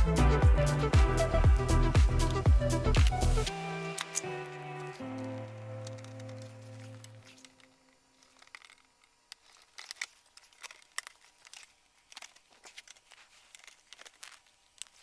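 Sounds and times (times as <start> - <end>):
faint rustling: 4.8 - 15.0.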